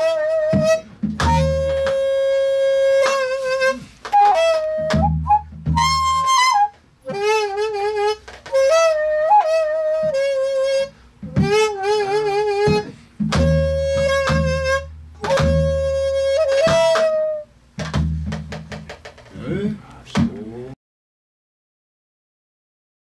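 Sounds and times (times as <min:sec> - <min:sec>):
bamboo flute playing solo: 0:00.0 - 0:17.6
flute player breathing: 0:03.7 - 0:04.2, 0:10.9 - 0:11.3, 0:12.8 - 0:13.2.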